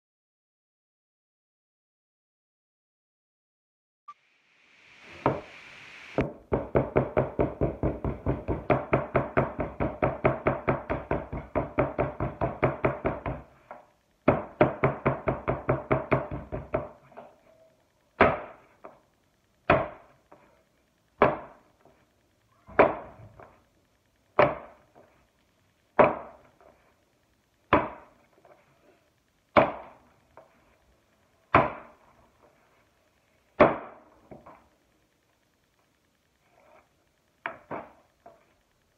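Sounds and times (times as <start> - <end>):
clay being pounded on a table: 6.2 - 13.5, 14.2 - 17.2, 18.2 - 19.0, 19.7 - 20.1, 21.2 - 21.6, 22.7 - 23.6, 24.4 - 24.8, 26.0 - 26.5, 27.7 - 28.2, 29.6 - 30.0, 31.5 - 32.0, 33.6 - 34.6.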